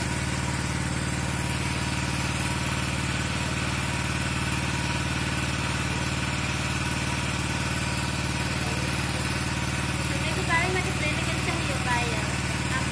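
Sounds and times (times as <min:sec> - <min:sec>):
small engine running: 0:00.0 - 0:12.9.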